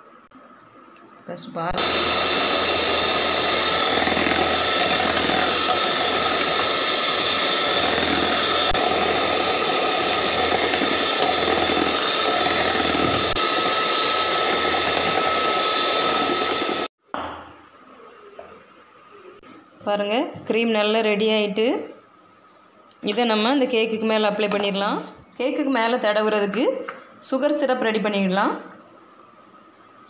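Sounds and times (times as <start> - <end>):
electric hand mixer whine: 1.8 - 17.0.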